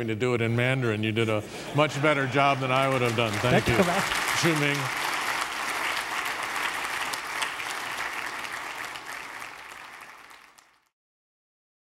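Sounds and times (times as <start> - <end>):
audience applauding: 1.8 - 10.9.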